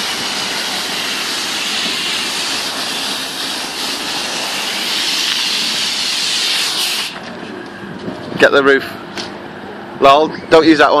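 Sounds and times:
pressure washer spraying water: 0:00.0 - 0:07.2.

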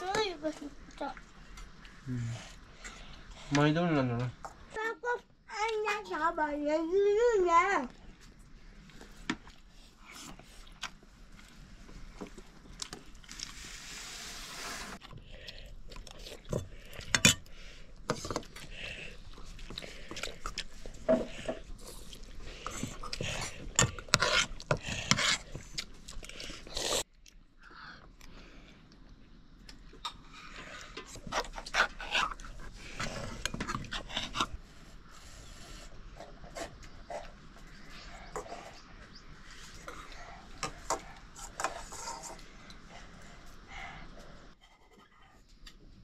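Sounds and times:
hiss: 0:13.6 - 0:15.0
chewing: 0:15.0 - 0:27.4.

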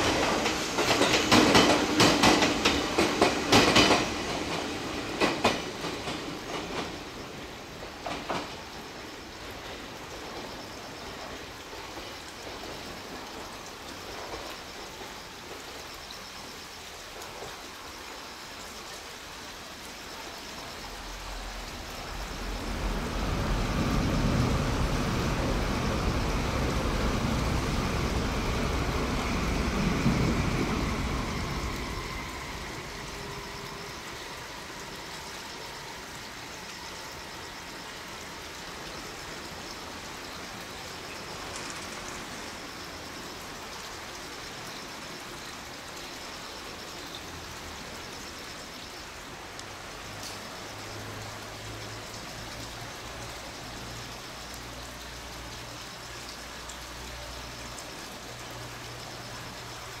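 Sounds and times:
outdoor background noise: 0:00.0 - 1:00.0
low steady engine hum: 0:20.6 - 0:40.1.

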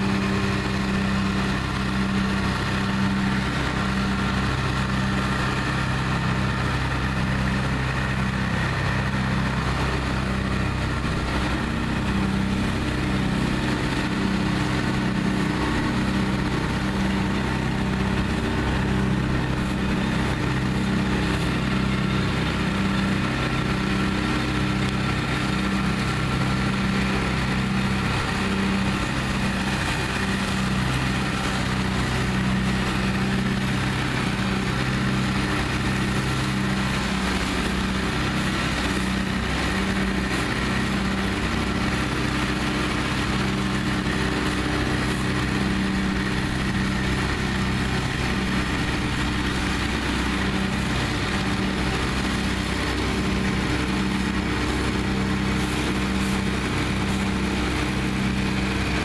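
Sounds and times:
leaf vacuum engine hum: 0:00.0 - 0:59.0
fan rushing hiss: 0:51.6 - 0:59.0.

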